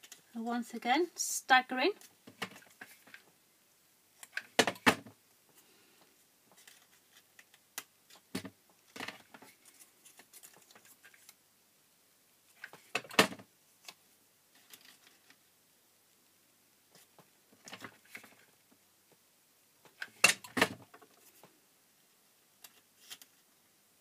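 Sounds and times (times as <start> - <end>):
paper rustling: 6.5 - 8.3, 9.0 - 11.4.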